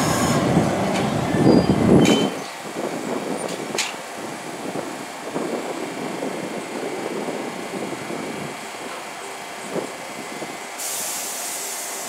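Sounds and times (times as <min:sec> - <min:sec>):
subway train rolling to a stop: 0:00.0 - 0:12.0.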